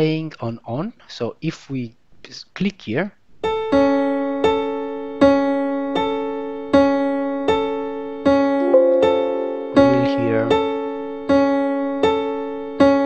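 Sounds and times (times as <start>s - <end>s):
piano single notes: 8.6s - 11.2s.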